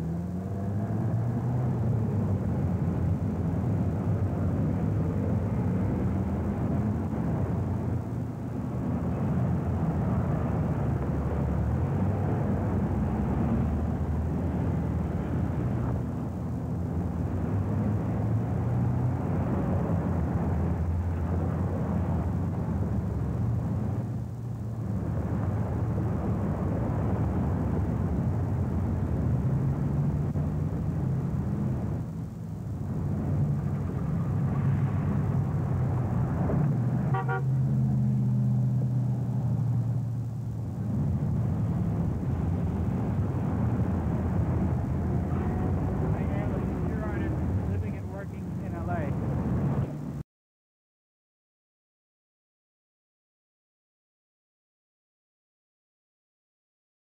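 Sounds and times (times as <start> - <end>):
busy road traffic: 0.0 - 50.2
car horn toot: 37.1 - 37.6.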